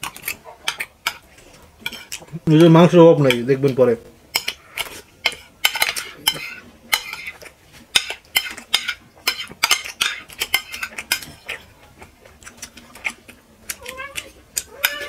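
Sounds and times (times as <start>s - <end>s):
cutlery clinking on ceramic plates: 4.4s - 11.7s, 14.2s - 15.0s.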